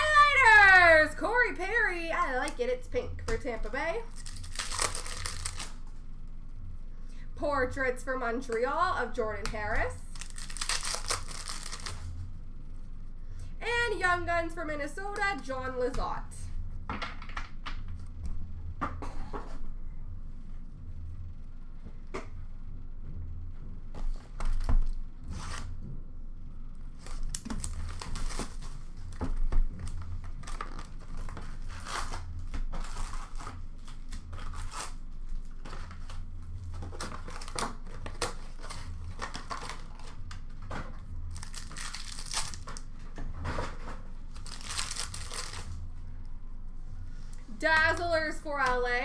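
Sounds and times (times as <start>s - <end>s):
foil pack tearing: 4.1s - 5.8s, 10.1s - 12.1s, 27.0s - 28.8s, 41.3s - 42.9s, 44.3s - 45.8s
foil packs crinkling: 4.1s - 5.8s, 10.1s - 12.1s, 27.0s - 28.8s, 36.9s - 40.2s, 41.3s - 42.9s, 44.3s - 45.7s.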